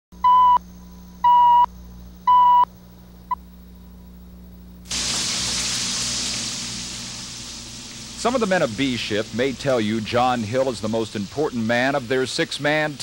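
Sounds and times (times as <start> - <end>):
low hum: 0.2 - 12.2
food sizzling: 4.9 - 13.0.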